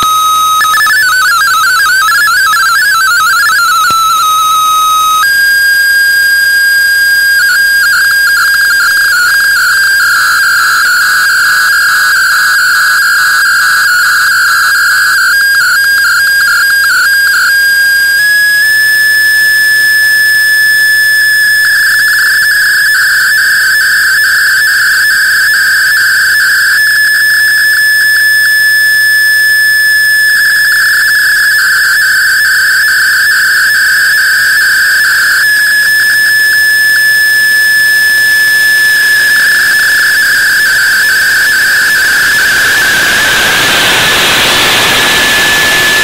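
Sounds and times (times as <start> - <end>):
buzzy warbling data signal with ticking: 0.0 - 46.0
high whistle-like tone: 0.0 - 46.0
radio hiss: 36.9 - 46.0.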